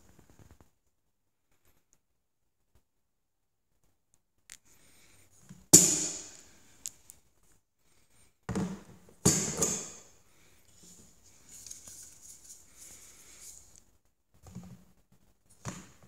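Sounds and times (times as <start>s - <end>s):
handling rustle: 10.7s - 13.9s.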